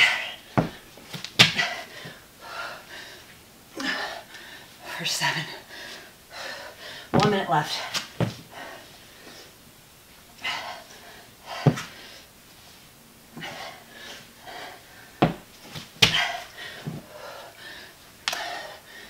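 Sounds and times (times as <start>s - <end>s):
woman panting: 1.4s - 9.5s, 10.4s - 12.3s, 13.3s - 15.3s, 16.0s - 19.0s
dumbbell thumps on floor: 7.1s - 7.4s, 11.7s - 11.9s, 15.2s - 16.3s.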